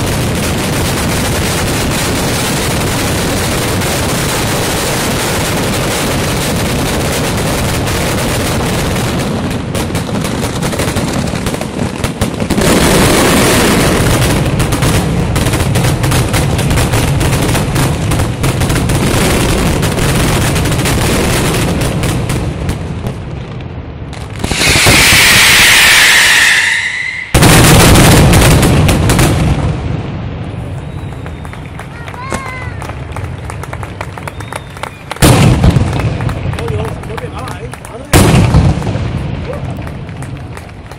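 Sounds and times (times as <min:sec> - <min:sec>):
charges bursting overhead: 0:00.0 - 0:23.0, 0:24.2 - 0:30.0
firecrackers banging: 0:00.0 - 0:40.9
high whistling tone: 0:24.5 - 0:27.4.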